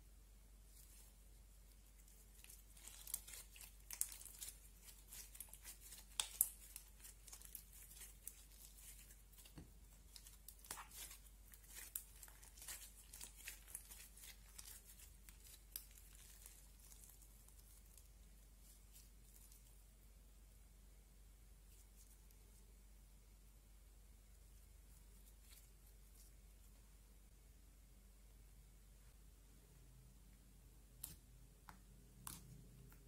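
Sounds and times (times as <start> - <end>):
slime kneaded by hand: 0.7 - 19.8.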